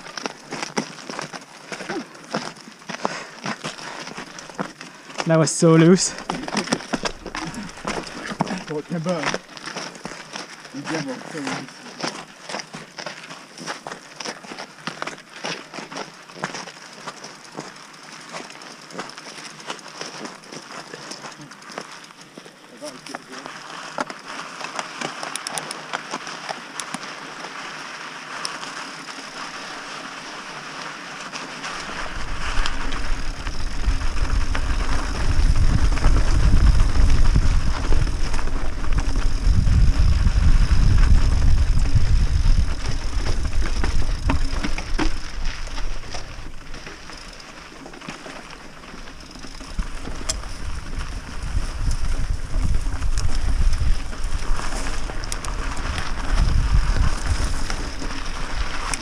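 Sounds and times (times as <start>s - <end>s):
bike rattling over stones: 0.0s - 59.0s
tyres crunching over gravel: 0.0s - 59.0s
wind buffeting microphone: 31.9s - 46.8s, 49.5s - 59.0s.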